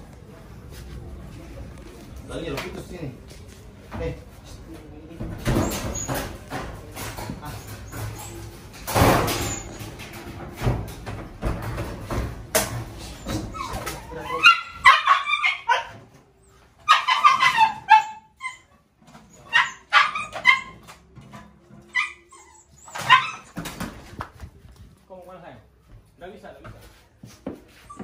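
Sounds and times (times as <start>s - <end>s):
knocks and rustling: 5.2s - 14.1s
dog barking and yelping: 13.5s - 16.0s, 16.8s - 18.7s, 19.3s - 20.9s, 21.9s - 23.6s.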